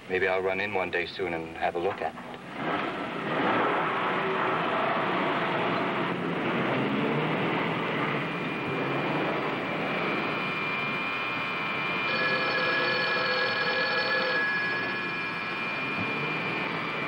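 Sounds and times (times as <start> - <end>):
telephone bell ringing: 9.8 - 17.0.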